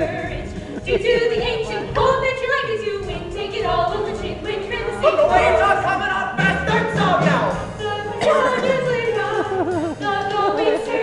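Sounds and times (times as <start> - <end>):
instrumental accompaniment: 0.0 - 11.0.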